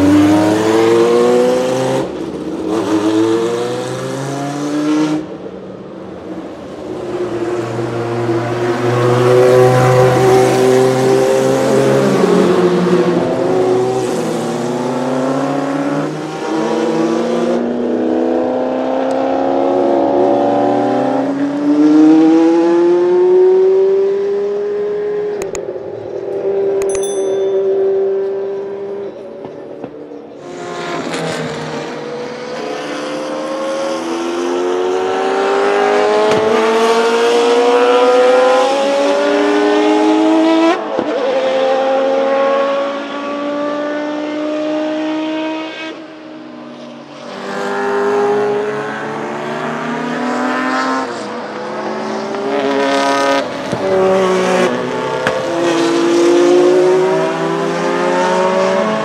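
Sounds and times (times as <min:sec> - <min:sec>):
race car engine accelerating: 0:47.2 - 0:59.0.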